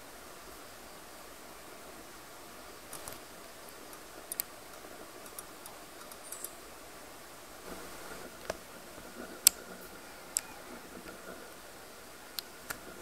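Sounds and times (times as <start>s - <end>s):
faint steady hiss: 0.0s - 13.0s
sharp ticks: 2.9s - 6.6s.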